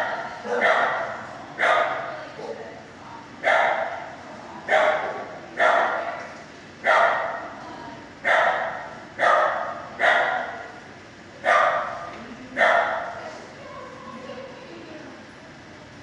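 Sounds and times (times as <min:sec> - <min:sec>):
dog barking with echo: 0:00.0 - 0:02.6, 0:03.4 - 0:04.1, 0:04.7 - 0:06.1, 0:06.8 - 0:07.5, 0:08.2 - 0:10.6, 0:11.4 - 0:12.0, 0:12.6 - 0:13.2.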